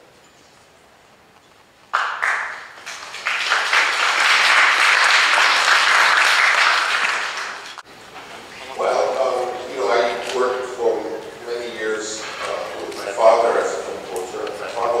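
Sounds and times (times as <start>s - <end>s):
audience applause: 1.9s - 7.8s.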